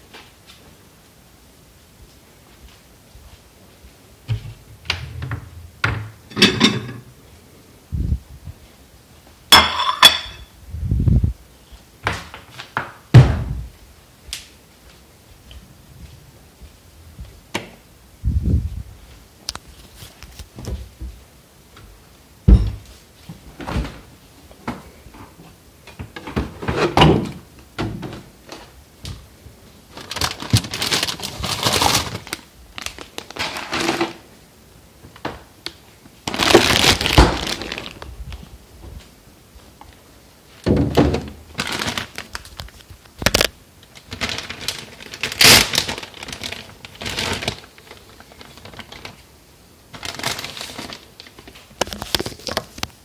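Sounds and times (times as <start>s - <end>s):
rustling: 28.4s - 34.3s, 35.9s - 53.0s.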